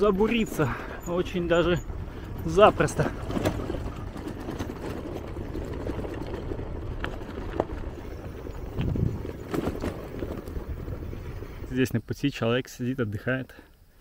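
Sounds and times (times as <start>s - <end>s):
bicycle tyres rumbling on rock: 0.0s - 11.8s
bike knocks and rattles: 1.8s - 10.9s.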